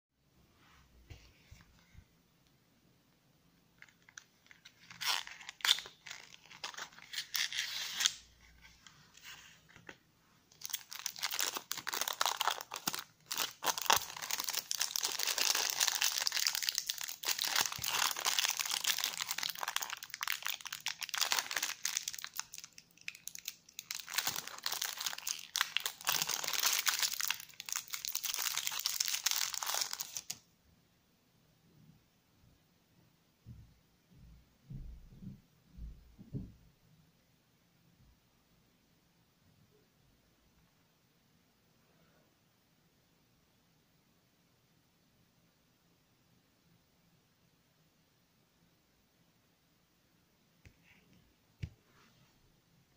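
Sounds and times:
plastic film crinkling: 3.8s - 30.4s.

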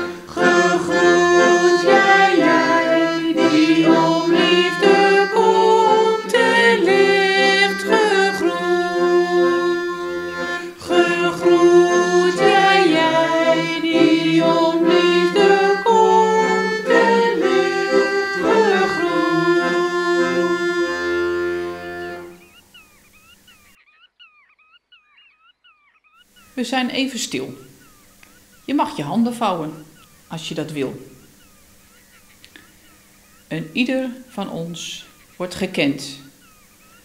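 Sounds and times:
woman singing slowly: 0.0s - 21.8s
held instrumental chords: 0.0s - 22.6s.

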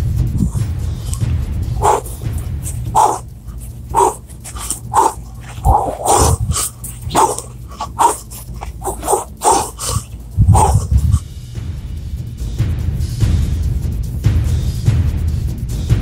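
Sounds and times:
short barks: 0.4s - 11.2s.

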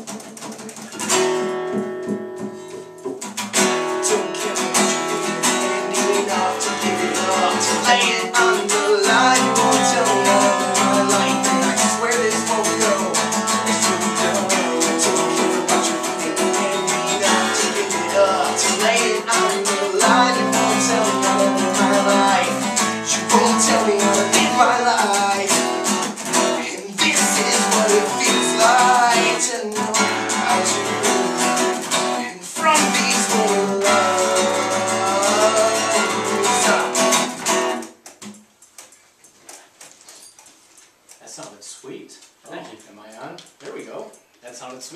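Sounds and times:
acoustic guitar: 0.0s - 44.9s
man singing: 4.0s - 37.4s.

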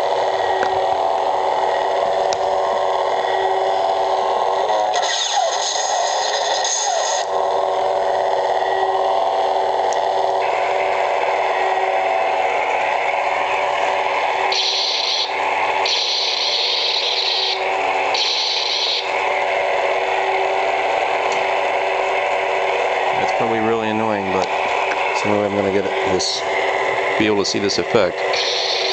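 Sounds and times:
lightsaber hum: 0.0s - 28.9s.

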